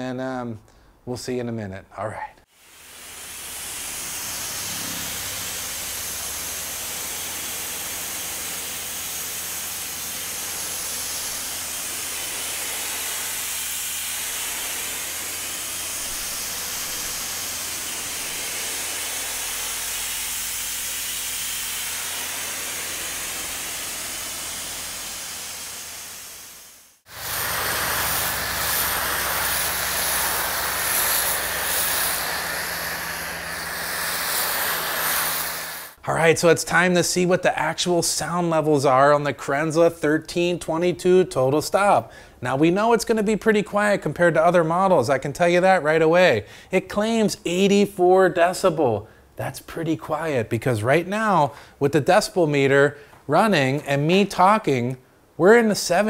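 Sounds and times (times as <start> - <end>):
foam cannon spraying: 2.5 - 36.0
pressure washer water spray hiss: 2.5 - 36.0
steady hum: 2.6 - 36.3.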